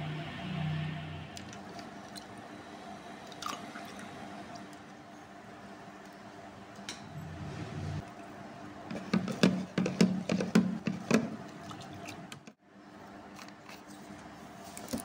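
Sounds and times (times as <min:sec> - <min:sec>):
spoon knocking plastic jug: 0:08.9 - 0:11.4.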